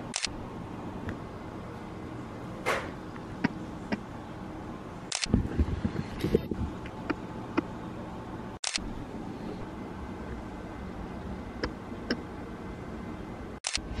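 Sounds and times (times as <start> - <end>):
camera shutter click: 0.1 - 0.3, 5.1 - 5.3, 8.6 - 8.8, 13.6 - 13.8.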